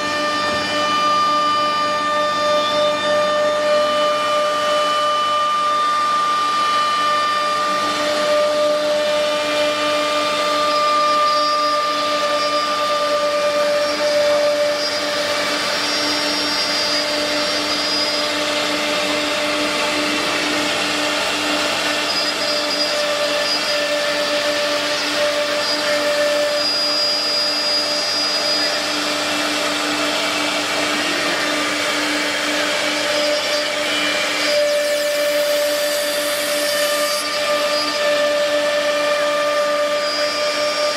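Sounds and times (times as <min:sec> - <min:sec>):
router spindle whine: 0:00.0 - 0:40.9
bit routing through board: 0:09.1 - 0:40.9.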